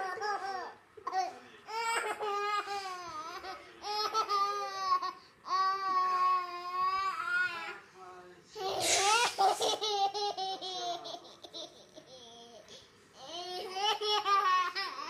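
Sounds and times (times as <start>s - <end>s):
baby laughing and squealing: 8.6s - 12.4s.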